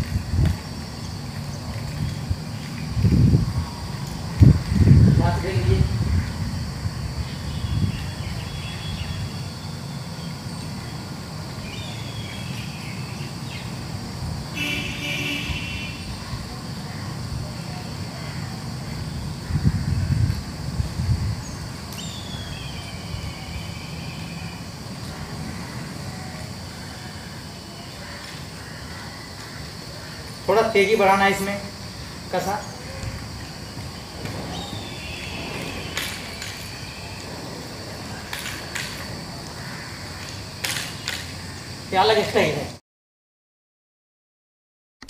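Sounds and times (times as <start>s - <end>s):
distant street traffic: 0.0s - 42.8s
vehicle horn tooting: 14.6s - 16.1s.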